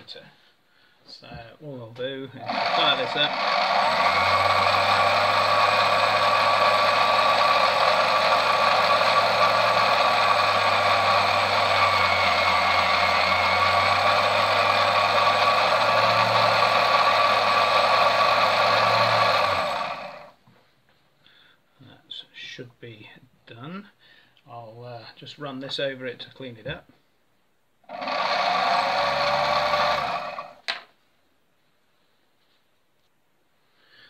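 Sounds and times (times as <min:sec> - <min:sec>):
bench lathe humming and whining: 0:02.4 - 0:20.3, 0:27.9 - 0:30.6.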